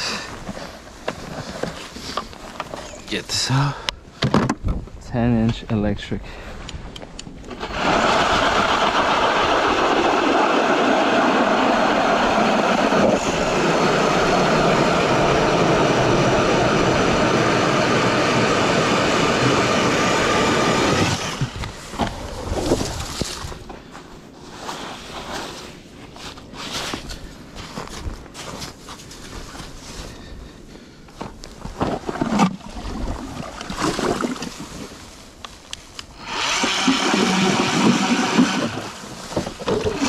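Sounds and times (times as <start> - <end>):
electric ice auger drilling: 7.5 - 21.8, 36.1 - 40.0.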